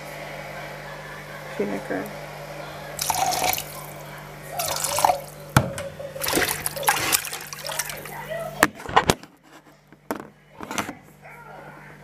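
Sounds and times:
tap water splashing in a sink: 0:04.6 - 0:08.8.

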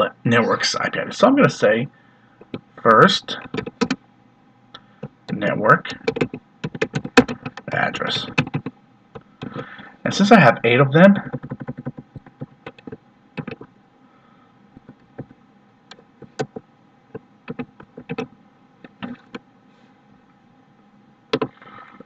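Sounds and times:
keyboard keystrokes: 0:03.4 - 0:04.0, 0:06.0 - 0:07.7, 0:11.3 - 0:13.7, 0:17.5 - 0:19.4, 0:21.3 - 0:21.6.

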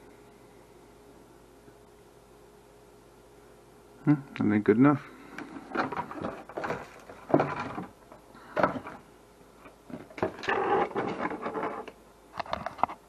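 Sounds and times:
rustling: 0:05.3 - 0:13.0.

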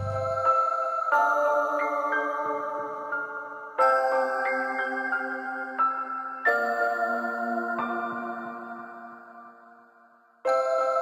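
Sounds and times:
chiming chords music: 0:00.0 - 0:09.8.

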